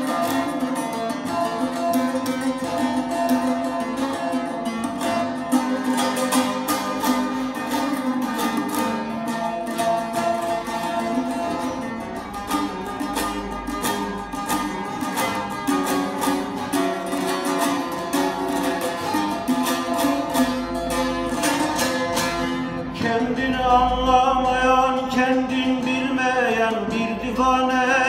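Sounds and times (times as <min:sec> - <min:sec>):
long-necked lute strummed rhythmically: 0:00.0 - 0:28.0
man singing folk song: 0:22.8 - 0:28.0.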